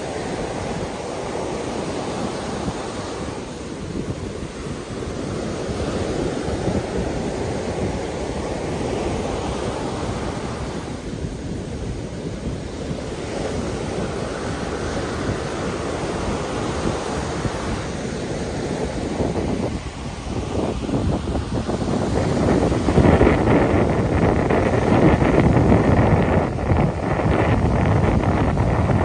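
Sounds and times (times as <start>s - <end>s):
surf breaking on a beach: 0.0s - 29.0s.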